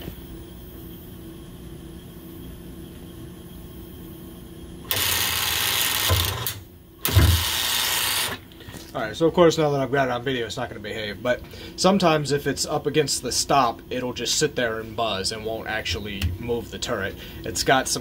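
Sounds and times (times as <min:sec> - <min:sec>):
faint steady hum: 0:00.0 - 0:18.0
lathe turret motor driving belt: 0:04.9 - 0:08.4.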